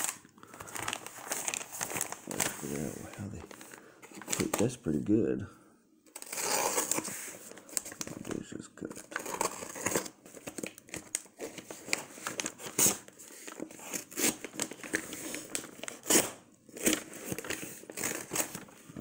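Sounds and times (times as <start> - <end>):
loud paper rustles: 0.0 - 4.8, 9.2 - 19.0
paper and tape crinkling: 0.0 - 4.8, 6.1 - 19.0.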